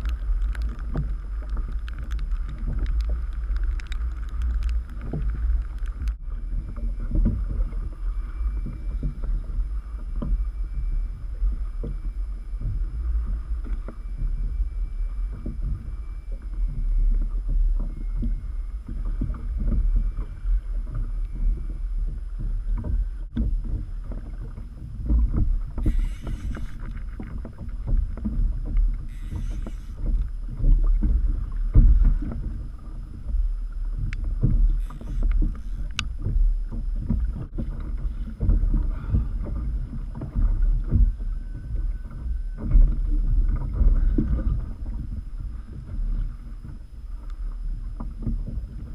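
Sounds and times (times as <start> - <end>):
wind rumble on microphone: 0.0 - 48.9.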